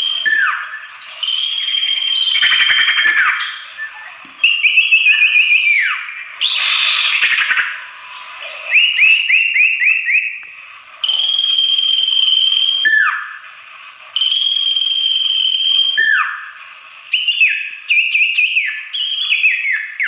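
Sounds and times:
bird calls: 0:00.0 - 0:11.3, 0:15.9 - 0:20.0.

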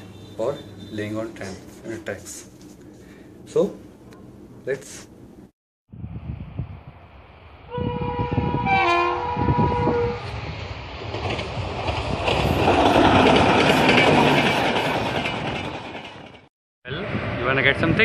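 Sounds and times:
train rushing past: 0:06.4 - 0:18.0
train horn: 0:07.7 - 0:10.4.

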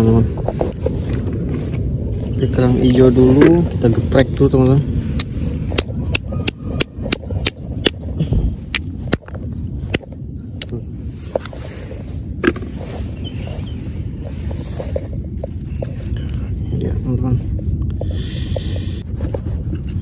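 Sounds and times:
steady low rumble: 0:00.0 - 0:20.0
mussel shells cracking: 0:05.1 - 0:11.6.

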